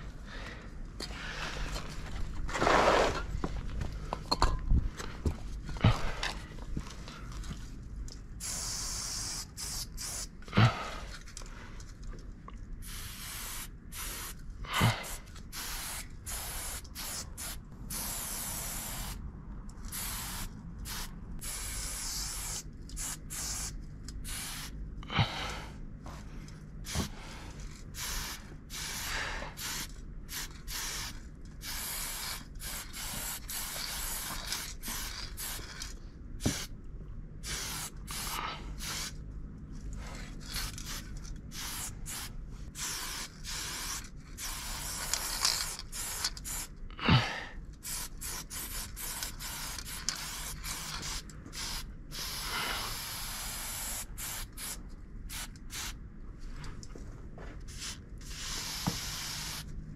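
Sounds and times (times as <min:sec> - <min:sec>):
spray paint can hissing: 0:08.4 - 0:10.4, 0:12.8 - 0:19.2, 0:19.8 - 0:24.8, 0:27.9 - 0:36.7, 0:37.4 - 0:39.2, 0:40.4 - 0:46.7, 0:47.8 - 0:56.0, 0:57.7 - 0:59.7.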